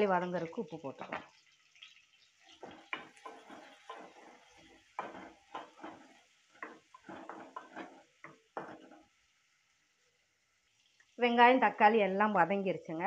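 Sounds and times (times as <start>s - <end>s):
spoon scraping a metal pan: 2.4s - 9.1s.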